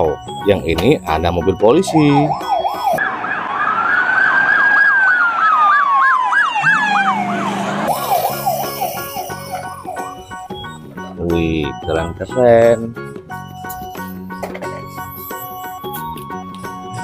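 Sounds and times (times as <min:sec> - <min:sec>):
police siren yelp: 0:01.2 - 0:10.8
police siren wail: 0:01.3 - 0:10.8.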